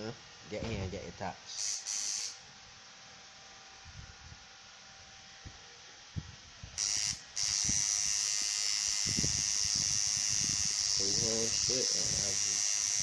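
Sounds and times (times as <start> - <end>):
tattoo machine buzzing: 1.5 - 2.4, 6.8 - 13.0.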